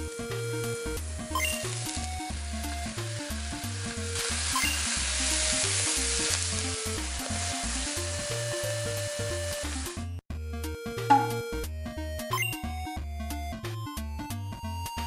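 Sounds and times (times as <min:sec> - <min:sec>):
bacon and onions sizzling: 0:01.0 - 0:10.0.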